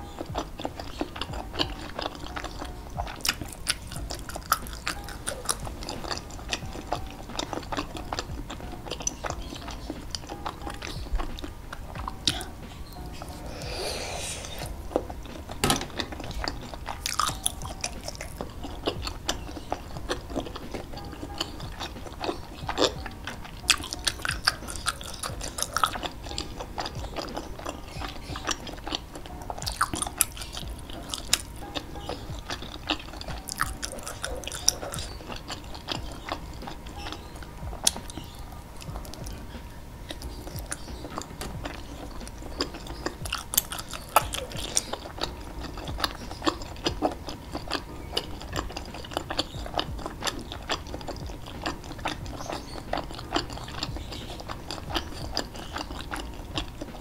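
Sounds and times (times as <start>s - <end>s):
person chewing: 0.0s - 57.0s
mouth clicks: 0.2s - 15.1s.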